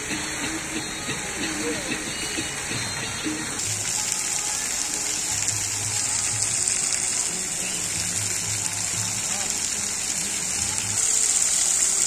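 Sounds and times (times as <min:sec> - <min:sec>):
fountain water falling onto rocks: 0:00.0 - 0:12.0.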